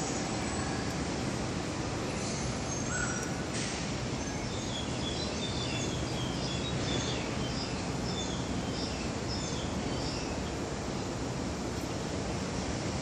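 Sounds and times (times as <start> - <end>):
steady background noise: 0.0 - 13.0
birds chirping: 4.2 - 11.2.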